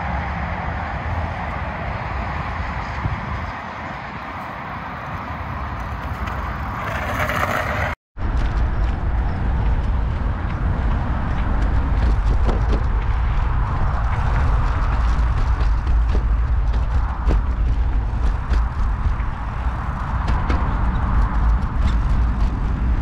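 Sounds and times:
wind and tyre noise: 0.0 - 23.0
deep rumble: 8.2 - 23.0.

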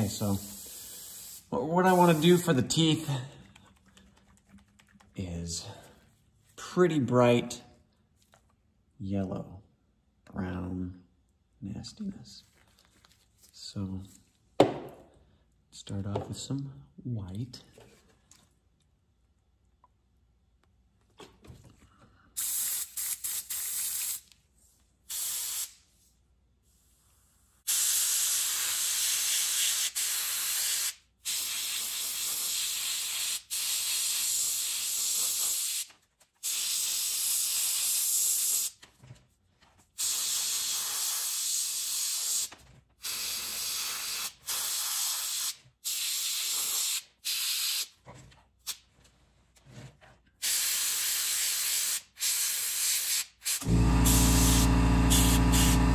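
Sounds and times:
airbrush spraying: 0.0 - 2.6, 22.4 - 24.3, 25.1 - 26.0, 27.7 - 38.8, 40.0 - 47.9, 50.4 - 55.9.

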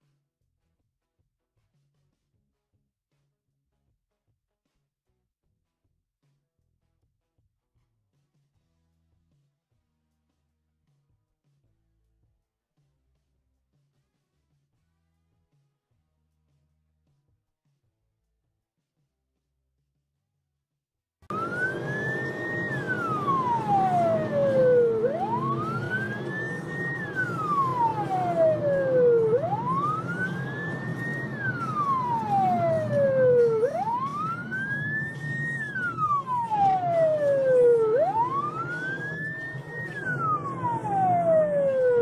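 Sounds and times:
car engine and road noise: 21.3 - 42.0
police siren wailing: 21.3 - 42.0.

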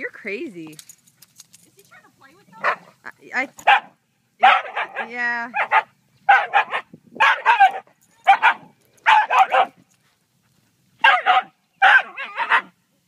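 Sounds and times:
dog barking and yelping: 2.5 - 3.0, 3.6 - 9.8, 11.0 - 12.8.

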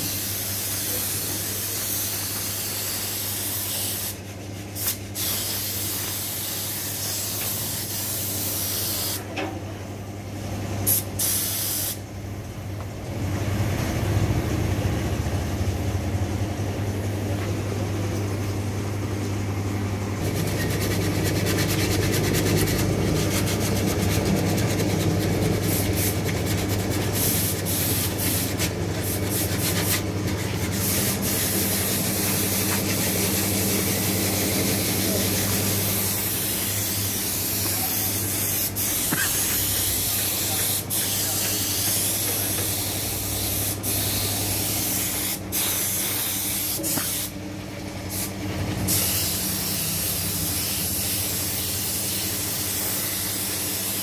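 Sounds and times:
paint spray gun hissing: 0.0 - 4.2, 4.8 - 9.2, 10.9 - 12.0, 25.6 - 30.0, 30.8 - 47.3, 48.9 - 54.0.

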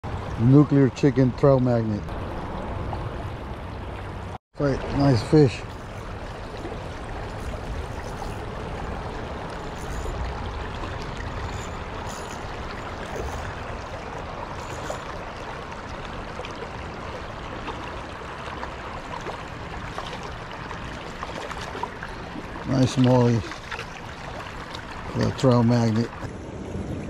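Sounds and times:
stream flowing over stones: 0.1 - 27.0.

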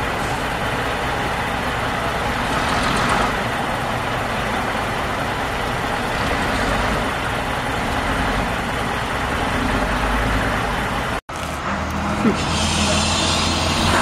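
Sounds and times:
bus diesel engine running: 0.0 - 14.0.

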